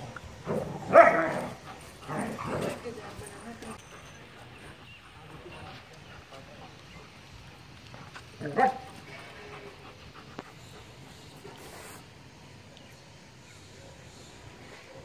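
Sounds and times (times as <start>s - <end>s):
dog barking: 0.9s - 1.6s
dog panting: 1.4s - 12.0s.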